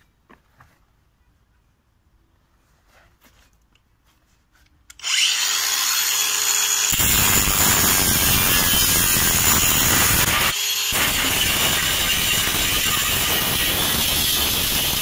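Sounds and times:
angle grinder whine: 5.0s - 15.0s
grinder disc cutting steel: 5.0s - 15.0s.

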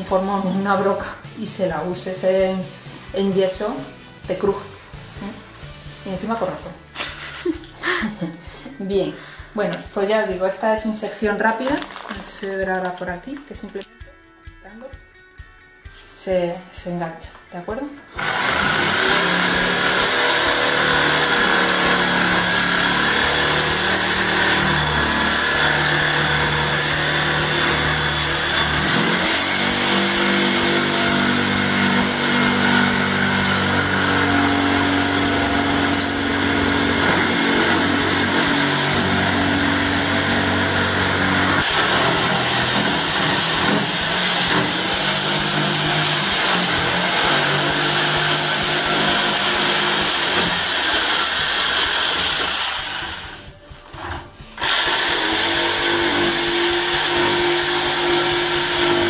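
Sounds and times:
jigsaw cutting plaster: 18.1s - 59.0s.

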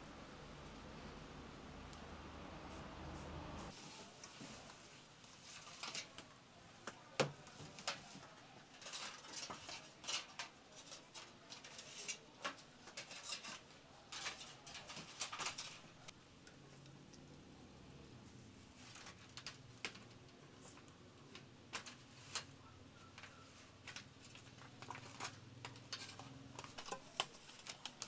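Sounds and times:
aluminium foil crinkling: 3.7s - 6.4s, 7.4s - 16.1s, 21.7s - 28.0s.

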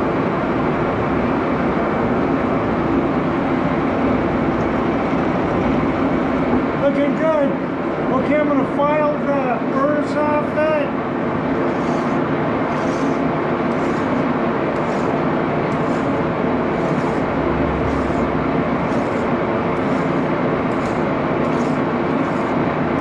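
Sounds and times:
lathe running with gear hum: 11.2s - 23.0s
hand file stroking metal: 11.7s - 17.3s, 17.9s - 22.6s.

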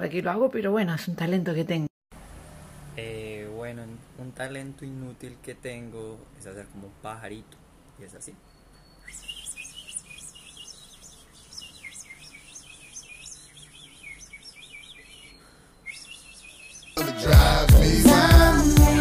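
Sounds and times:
man imitating bird chirps: 9.0s - 17.0s
music: 17.0s - 19.0s.

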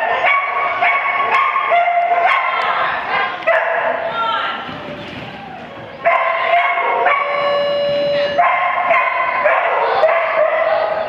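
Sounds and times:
dog barking and yipping: 0.0s - 2.7s, 3.5s - 4.0s, 6.0s - 7.5s, 8.4s - 11.0s.

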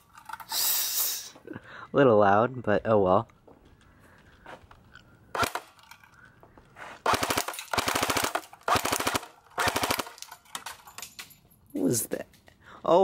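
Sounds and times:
airsoft rifle firing bursts: 7.0s - 10.2s.

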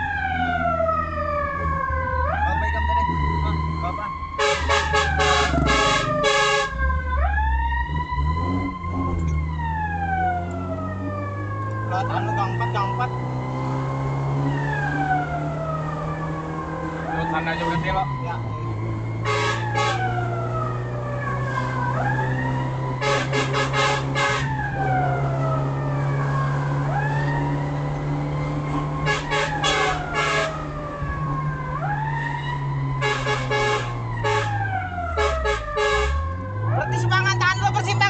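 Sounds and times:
fire engine siren wailing: 0.0s - 38.0s
vehicle engine hum: 0.0s - 38.0s
rapid horn blasts: 4.4s - 6.8s, 19.2s - 20.2s, 23.0s - 24.6s, 29.0s - 30.7s, 33.0s - 36.3s.

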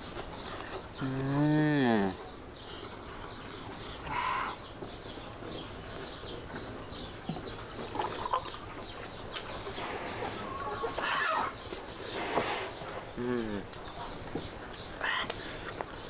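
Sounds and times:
birds chirping: 0.0s - 16.0s
chicken clucking: 6.1s - 11.9s.

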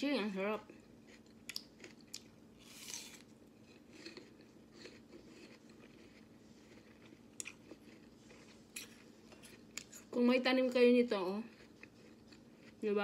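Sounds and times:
crunchy chewing: 0.8s - 10.2s, 11.4s - 12.9s
apple crunching: 1.0s - 10.0s.

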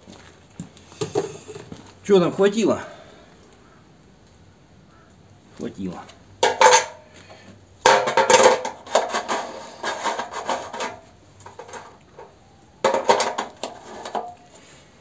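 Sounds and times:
plastic fuel cap clattering: 6.4s - 7.0s, 7.9s - 14.4s.

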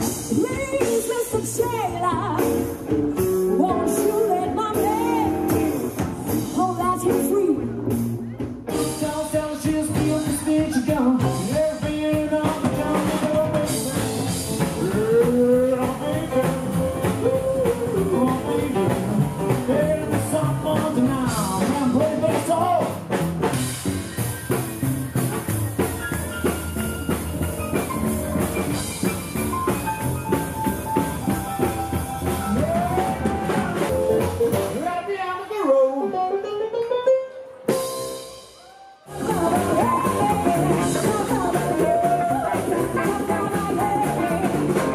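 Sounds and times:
person singing: 0.0s - 2.9s, 3.5s - 7.8s, 8.7s - 23.0s, 32.2s - 36.9s, 39.0s - 44.9s
drum kit: 0.0s - 35.1s, 37.5s - 44.9s
keyboard: 23.7s - 44.9s.

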